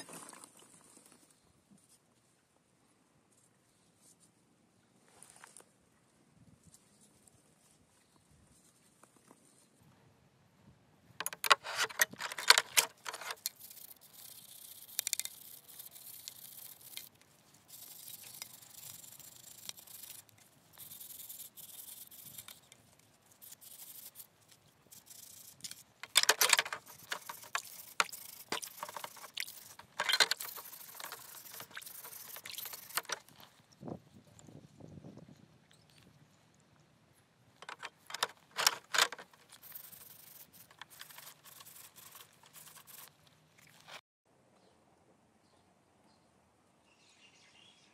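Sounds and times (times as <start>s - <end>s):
metal parts clinking and rattling: 11.2s - 13.9s, 25.6s - 33.2s, 37.6s - 42.2s
liquid splashing: 26.9s - 33.0s.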